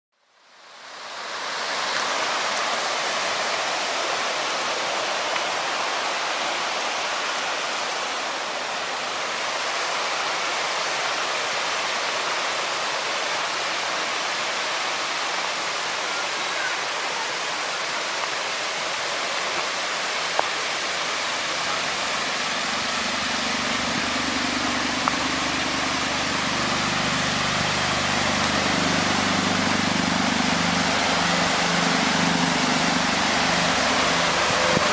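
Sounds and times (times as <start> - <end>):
river rushing over rocks: 0.4 - 34.9
deep rumble: 21.3 - 34.9.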